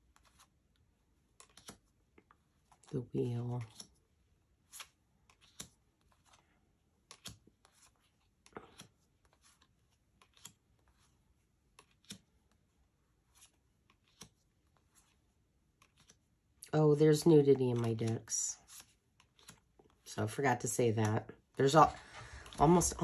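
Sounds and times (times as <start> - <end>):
cards clicking and tapping: 1.2 - 2.9, 3.6 - 4.0, 4.6 - 16.6, 17.5 - 20.1.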